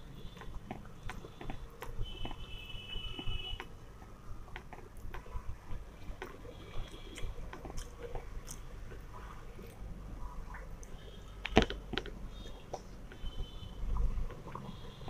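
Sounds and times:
chewing: 0:03.2 - 0:13.3.

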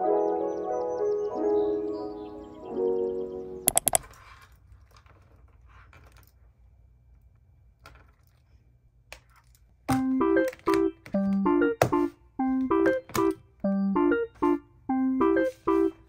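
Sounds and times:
earbud case clicks and rustles: 0:03.7 - 0:04.0
sharp clicks: 0:03.7 - 0:04.0
piano music: 0:13.7 - 0:16.0.

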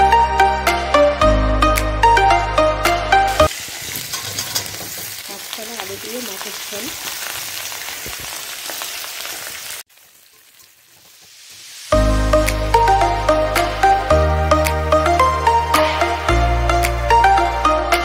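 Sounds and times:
music: 0:00.0 - 0:03.5, 0:11.9 - 0:18.0
vegetables sizzling in hot oil: 0:03.3 - 0:13.0
metal spatula stirring in wok: 0:03.8 - 0:05.2.

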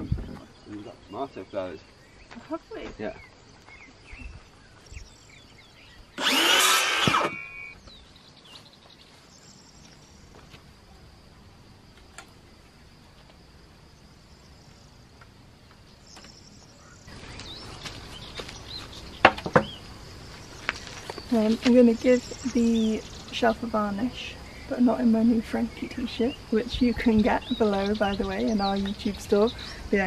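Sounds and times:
faint insect trill: 0:00.0 - 0:30.0
power tool on wooden board: 0:06.2 - 0:07.7.

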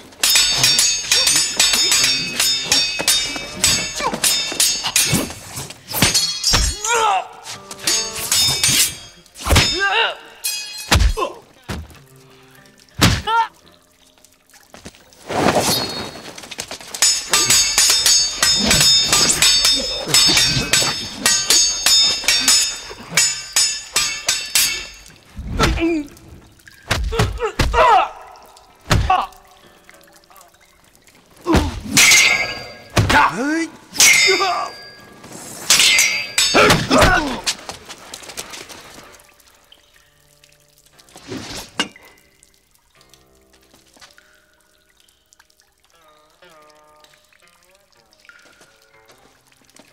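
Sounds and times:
swords clashing: 0:00.2 - 0:11.4, 0:17.0 - 0:26.0, 0:31.5 - 0:37.6.

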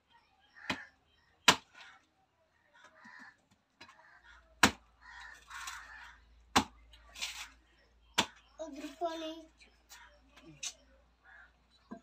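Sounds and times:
knife chopping fruit husks: 0:00.7 - 0:01.8, 0:04.6 - 0:04.9, 0:06.5 - 0:07.4, 0:08.2 - 0:08.4.

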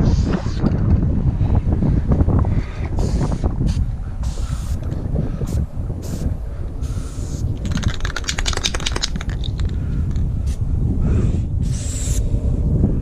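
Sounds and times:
wind rumbling on microphone: 0:00.0 - 0:13.0
spray paint can hissing: 0:03.0 - 0:09.8, 0:11.7 - 0:12.2
spray can rattling when shaken: 0:07.0 - 0:10.3.

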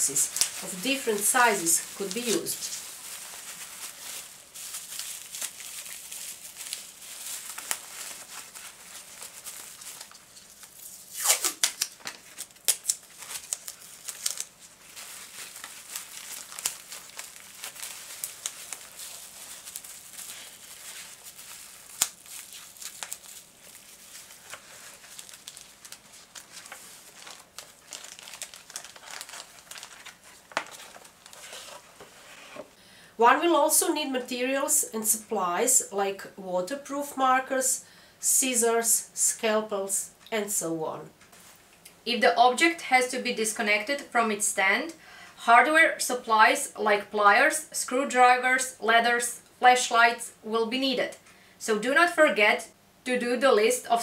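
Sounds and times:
packing material crinkling: 0:00.0 - 0:32.8.

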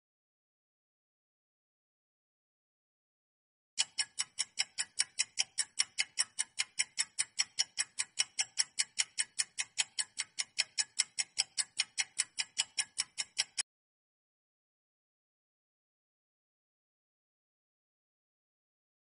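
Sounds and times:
clock ticking: 0:03.8 - 0:13.6.

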